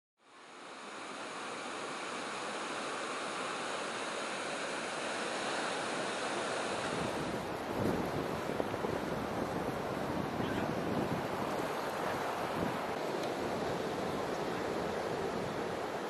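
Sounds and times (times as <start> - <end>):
ocean surf breaking: 0.4 - 16.0
wind rumble on microphone: 6.6 - 16.0.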